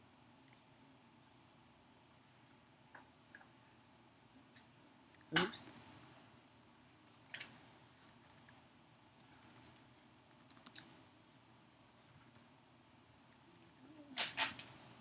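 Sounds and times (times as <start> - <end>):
faint keystrokes on keyboard: 7.0 - 11.0, 11.9 - 12.6.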